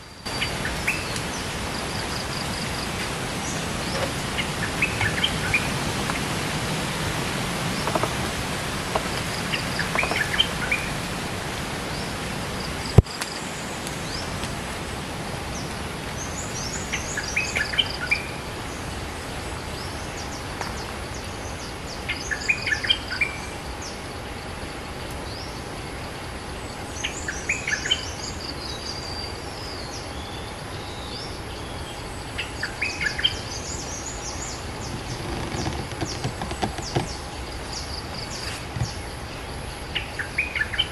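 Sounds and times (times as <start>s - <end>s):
outdoor background hiss: 0.0s - 40.9s
bird chattering song: 9.3s - 10.9s.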